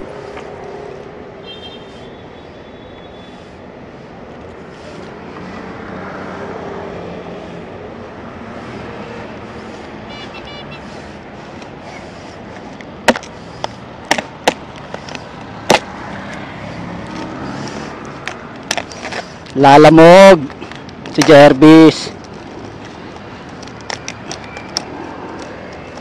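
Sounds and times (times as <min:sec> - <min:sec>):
street traffic noise: 0:00.0 - 0:26.0
sharp clicks and knocks from handling: 0:18.0 - 0:19.6, 0:20.4 - 0:21.4, 0:22.2 - 0:26.0.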